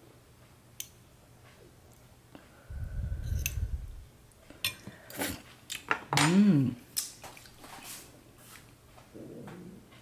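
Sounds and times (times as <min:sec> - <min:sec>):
low rumble: 0:02.7 - 0:04.2
cutlery clinking on ceramic bowl: 0:04.6 - 0:04.9.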